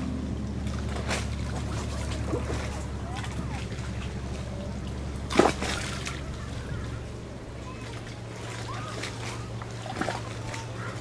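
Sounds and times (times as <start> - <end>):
steady low hum: 0.0 - 11.0
water splashing and trickling: 0.0 - 11.0
loud water slap: 5.3 - 6.3, 8.4 - 10.7.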